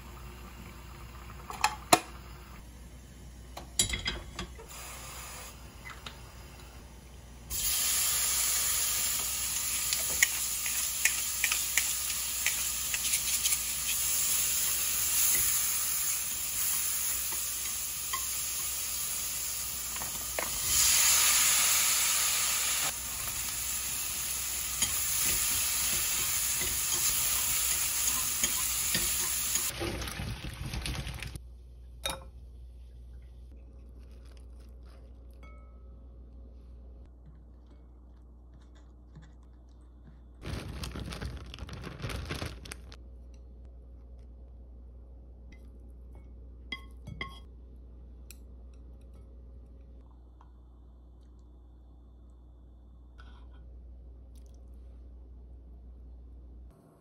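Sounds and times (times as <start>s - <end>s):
shrimp sizzling in frying pan: 7.5s - 29.7s.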